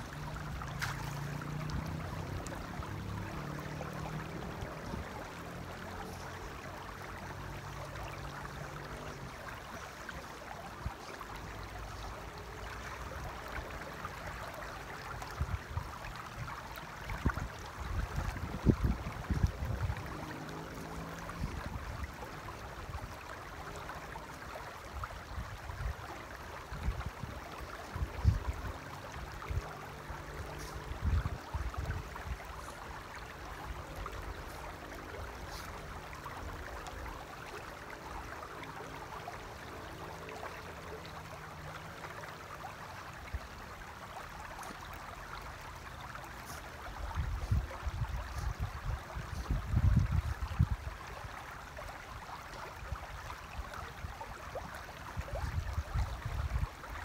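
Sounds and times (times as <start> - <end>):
river flowing over stones: 0.0 - 57.0
wind gusts on microphone: 17.2 - 20.4, 47.1 - 51.0, 55.2 - 56.9.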